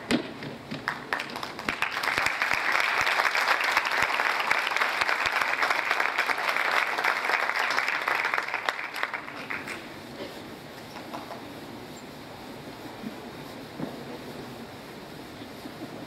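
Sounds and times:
audience applauding: 0.8s - 9.9s.

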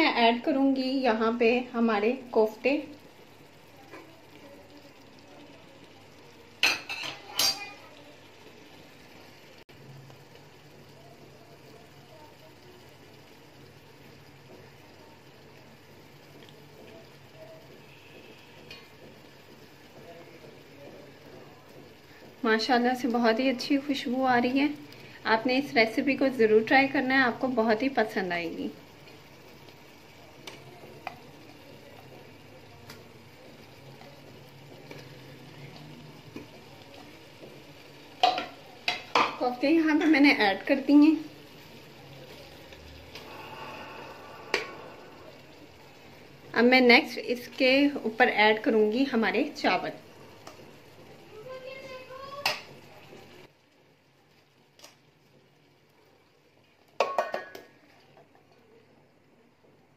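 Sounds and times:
faint bubbling of simmering pot: 0.0s - 59.9s
metal utensil clinking on pot: 6.6s - 7.7s.

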